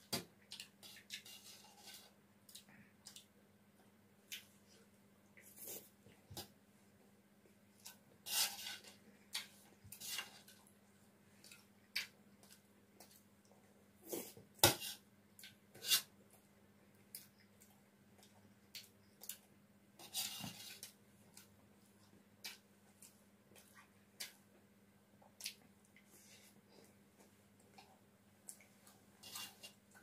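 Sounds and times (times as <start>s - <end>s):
metal spoon scraping steel plate: 29.2s - 29.8s.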